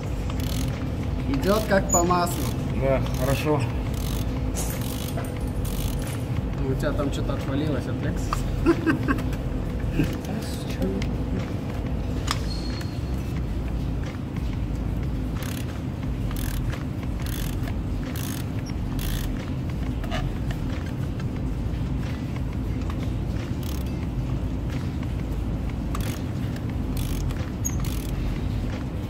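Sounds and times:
ratchet wrench clicking: 0:00.3 - 0:06.2, 0:15.4 - 0:19.4, 0:23.6 - 0:24.0, 0:25.9 - 0:28.3.

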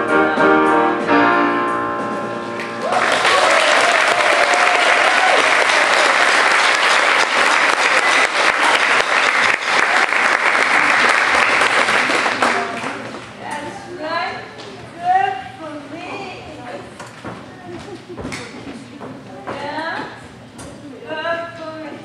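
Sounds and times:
choir singing with piano: 0:00.0 - 0:02.6
audience applause and cheering: 0:02.6 - 0:13.4.

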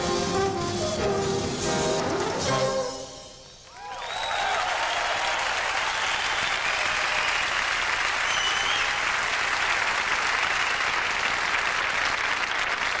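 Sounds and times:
audience applauding: 0:03.7 - 0:13.0.

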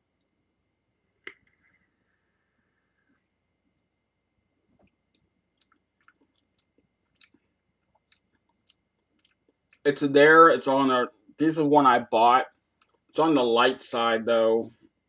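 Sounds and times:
faint high whine: 0:00.0 - 0:15.0
mouth clicks and lip smacks: 0:04.8 - 0:09.8, 0:12.8 - 0:13.1.

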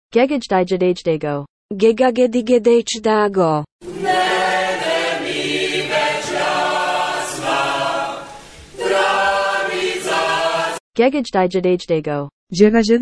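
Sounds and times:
choir singing held notes: 0:03.8 - 0:10.8.

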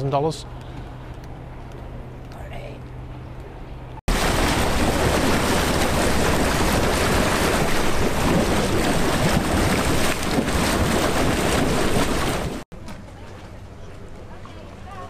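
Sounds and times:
motorboat engine running: 0:00.6 - 0:15.0
wind rumbling on microphone: 0:04.1 - 0:12.6
propeller wash churning water: 0:04.1 - 0:15.0.

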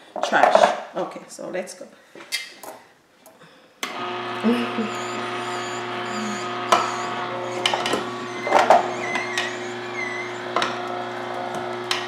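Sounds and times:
juicer motor hum: 0:03.8 - 0:12.0.

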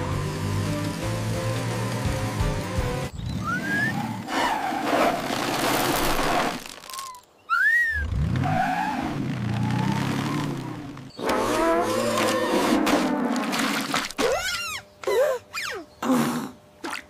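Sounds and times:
rising whistle swoops: 0:03.4 - 0:04.0
tyres skidding over gravel: 0:03.9 - 0:07.2.

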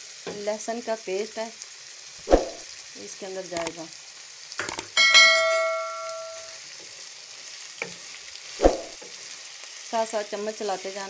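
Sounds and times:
food sizzling in a pan: 0:00.0 - 0:11.0
metal object ringing: 0:04.9 - 0:06.6.

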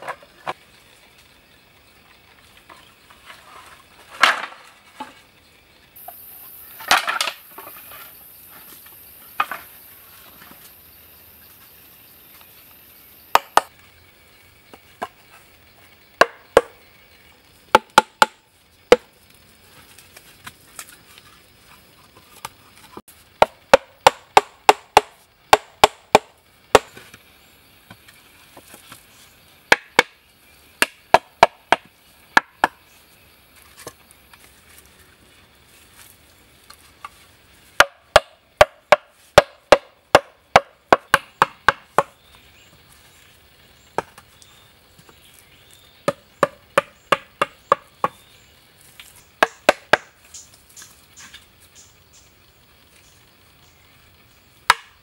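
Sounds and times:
chopping bamboo knocks: 0:04.2 - 0:05.1, 0:13.3 - 0:13.7, 0:16.2 - 0:16.8, 0:17.7 - 0:19.1, 0:23.4 - 0:27.2, 0:29.7 - 0:30.2, 0:30.8 - 0:32.8, 0:37.8 - 0:42.2, 0:46.0 - 0:48.2, 0:49.4 - 0:50.2, 0:54.7 - 0:55.0.

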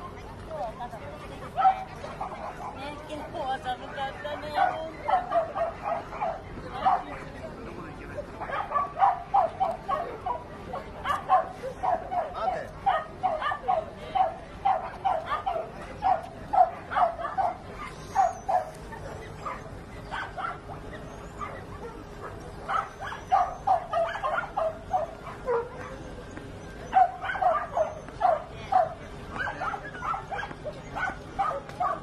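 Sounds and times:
dog barking: 0:01.6 - 0:02.8, 0:04.5 - 0:07.3, 0:08.4 - 0:18.8, 0:19.4 - 0:20.8, 0:21.4 - 0:26.1, 0:26.9 - 0:32.0.

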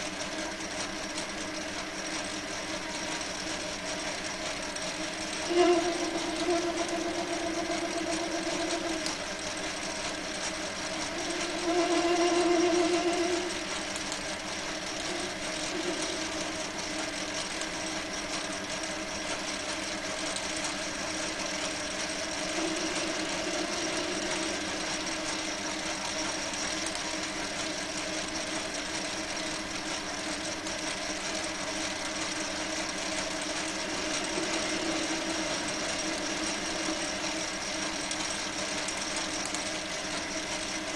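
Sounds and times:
metal lathe running: 0:00.0 - 0:40.9
high whine: 0:05.1 - 0:17.9, 0:20.9 - 0:27.6, 0:32.3 - 0:40.9.

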